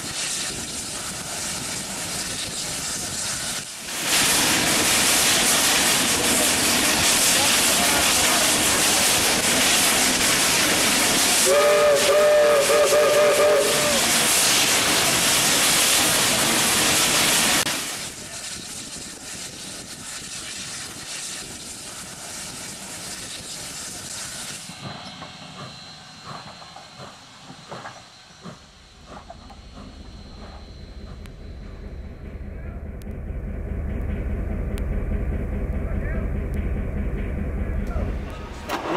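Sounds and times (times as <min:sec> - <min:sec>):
steam locomotive hissing: 0:00.0 - 0:38.9
locomotive chime whistle toots: 0:11.4 - 0:14.0.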